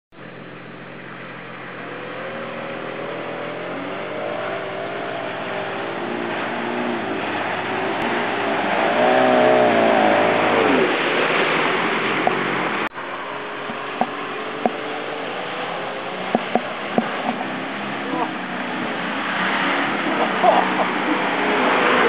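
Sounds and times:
engine revving: 0.2s - 22.0s
water rushing and sloshing: 0.2s - 22.0s.

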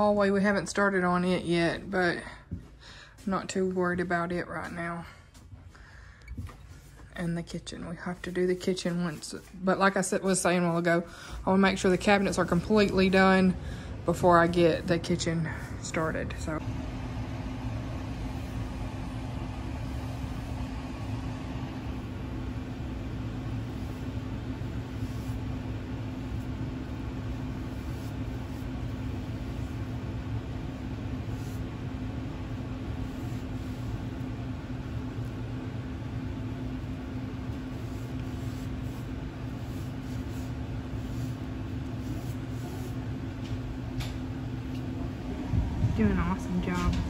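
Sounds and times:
low mechanical hum: 0.0s - 47.0s
paintbrush scratching on trim: 23.4s - 25.6s, 26.2s - 30.0s, 32.8s - 34.2s, 37.4s - 43.2s.

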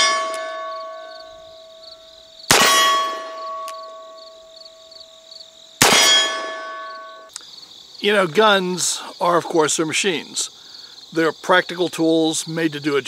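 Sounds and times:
metallic ringing: 0.0s - 7.3s
crickets chirping: 0.0s - 13.0s.

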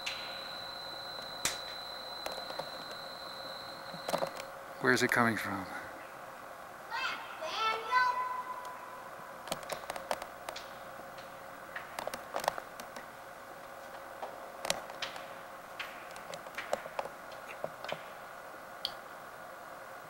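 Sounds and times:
sharp clicks and taps: 9.5s - 13.1s.

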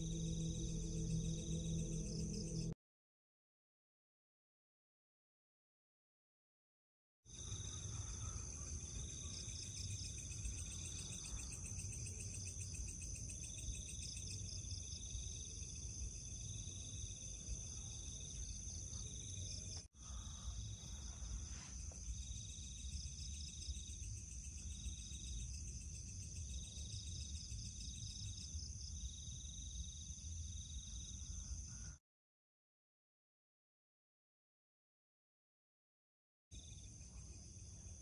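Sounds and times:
insects high-pitched ringing: 0.0s - 2.8s, 7.3s - 31.8s
low rumble: 0.0s - 2.8s.

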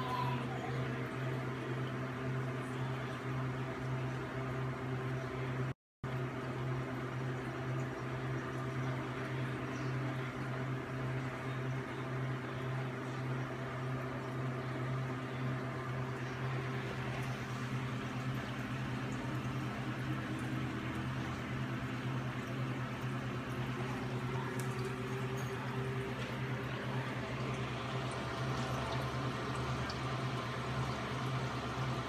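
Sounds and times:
low hum of pumps: 0.0s - 32.0s
water bubbling and trickling: 16.0s - 32.0s.

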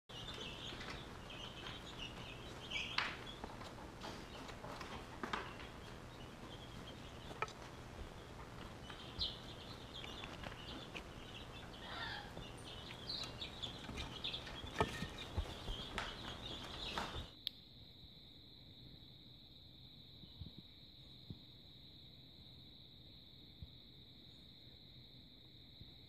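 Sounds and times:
emu chick peeping: 0.1s - 17.3s.

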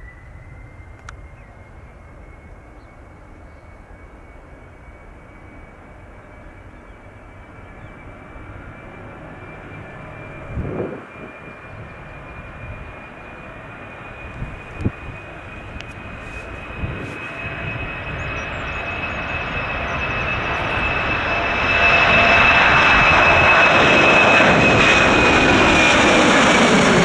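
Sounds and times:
jet engines whining: 0.0s - 27.0s
low rumble: 10.0s - 11.9s.

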